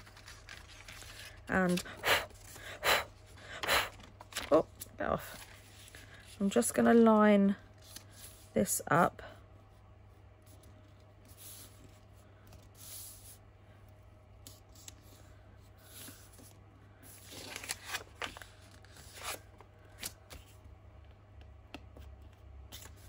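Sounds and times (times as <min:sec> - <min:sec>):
paper rustling under hands: 0:00.0 - 0:06.8, 0:07.7 - 0:08.5, 0:14.4 - 0:20.7.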